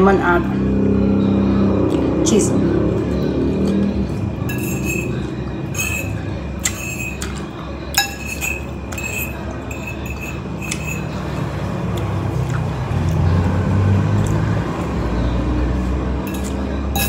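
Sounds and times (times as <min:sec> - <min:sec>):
cutlery clinking on ceramic bowl: 0:04.5 - 0:11.2, 0:16.3 - 0:17.0.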